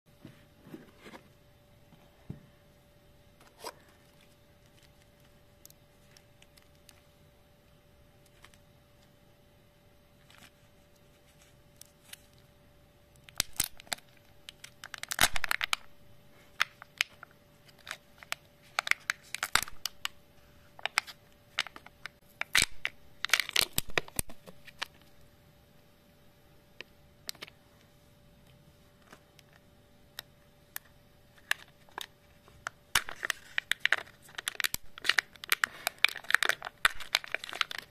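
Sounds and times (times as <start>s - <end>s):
plastic crackling and tearing: 3.6s - 7.1s, 13.1s - 15.9s, 16.5s - 20.2s, 20.8s - 25.1s, 31.3s - 37.9s.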